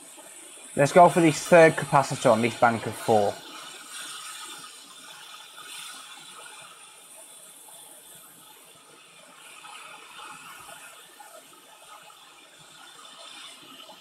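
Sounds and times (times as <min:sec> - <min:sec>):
hot air blower hissing: 0:00.8 - 0:04.1.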